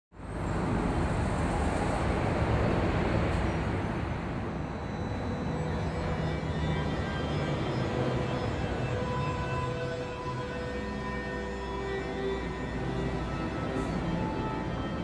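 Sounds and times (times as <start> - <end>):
outdoor rushing noise: 0.2 - 8.8
faint sustained music tones: 4.6 - 15.0.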